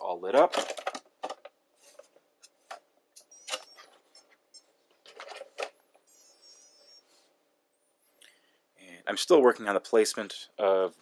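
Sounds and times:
faint high squeak: 3.2 - 4.7, 6.1 - 7.3.

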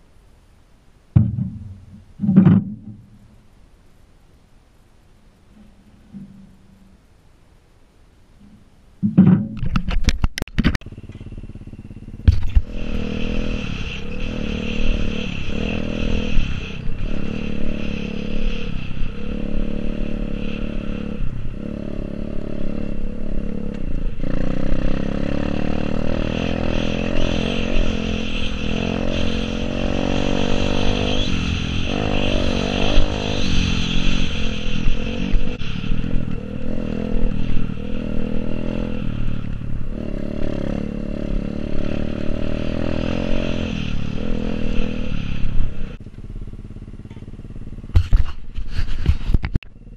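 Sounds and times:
sharp knock: 1.2 - 3.0
motorbike engine revving: 10.8 - 49.2.

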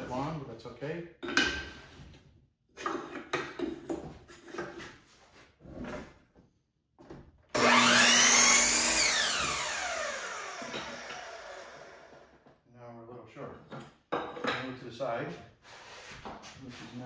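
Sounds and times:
power miter saw cutting: 7.6 - 12.4.

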